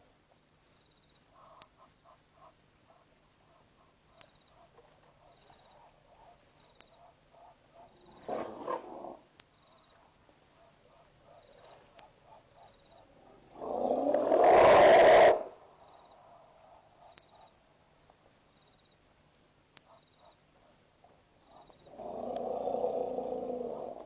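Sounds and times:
animal call: 13.4s - 15.6s.

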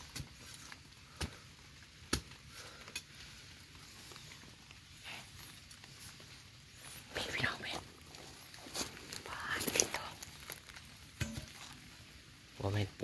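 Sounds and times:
rustling of leaf litter: 0.0s - 13.0s.

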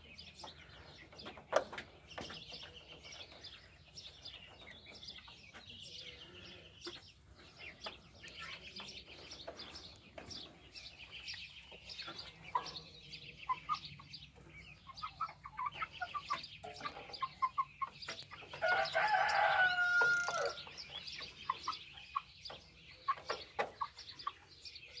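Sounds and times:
chickens clucking: 0.0s - 25.0s.

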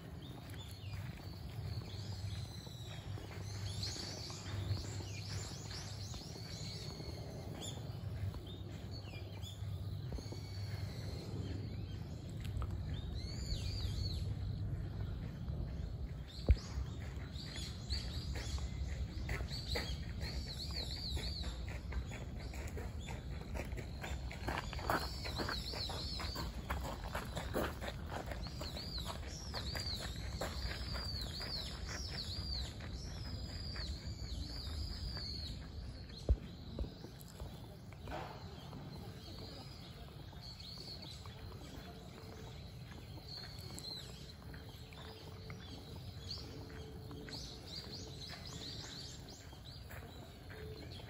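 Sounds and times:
birds chirping and warbling: 0.0s - 51.0s
low outdoor rumble: 0.2s - 24.6s.

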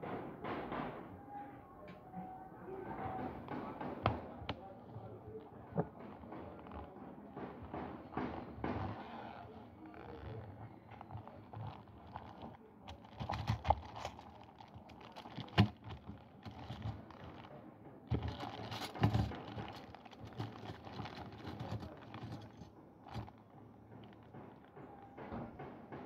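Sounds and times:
plastic bag crinkling: 9.3s - 24.6s.

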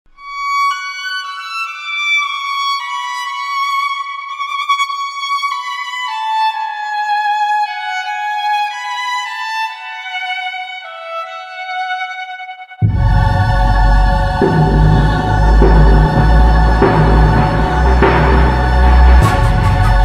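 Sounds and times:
solo violin slow melody: 0.1s - 12.8s.

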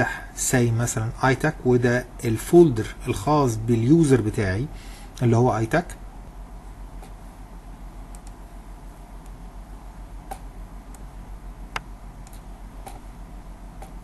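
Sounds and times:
low electrical hum: 0.0s - 14.0s
computer mouse clicks: 8.1s - 8.4s, 10.3s - 11.1s, 11.7s - 13.1s, 13.8s - 14.0s.

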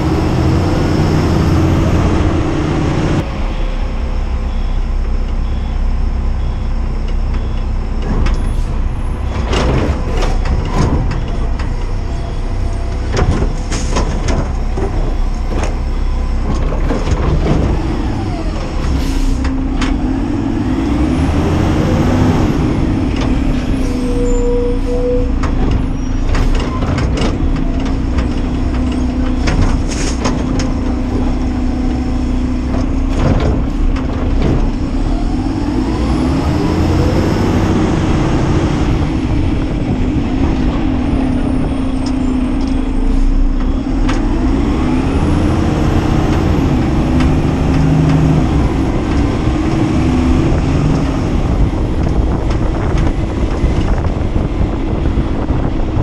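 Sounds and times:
engine revving: 0.0s - 3.3s, 16.7s - 24.0s, 27.1s - 55.9s
garbage truck engine running: 0.0s - 56.0s.

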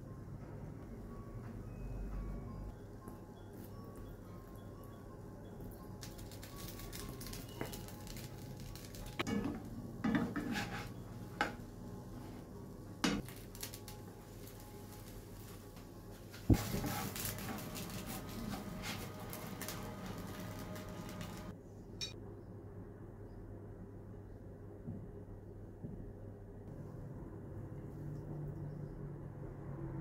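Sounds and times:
utensils scraping a frying pan: 9.2s - 11.6s.

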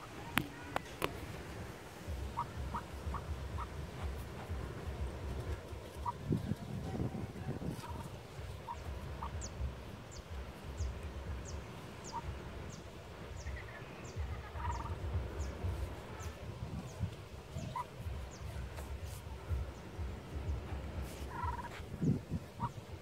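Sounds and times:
low microphone rumble: 0.0s - 23.0s
duck calling softly: 2.2s - 4.5s, 6.0s - 6.2s, 7.8s - 9.6s, 12.0s - 12.4s, 13.4s - 15.0s, 17.6s - 19.6s, 21.2s - 21.9s, 22.6s - 22.8s
small bird chirping: 8.6s - 17.0s.

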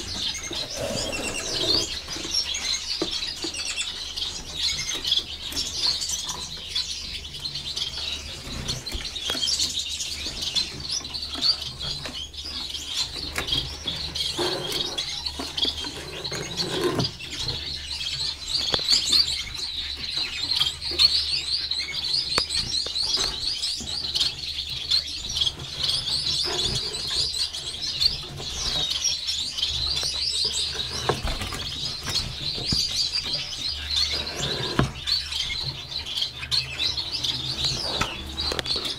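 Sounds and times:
finches chirping: 0.0s - 38.9s.

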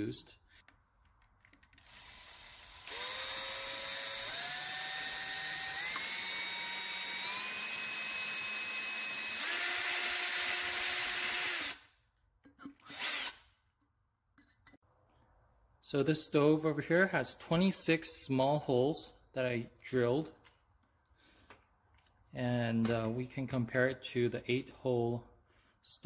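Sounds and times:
electric drill motor whining: 1.8s - 11.8s, 12.8s - 13.4s.

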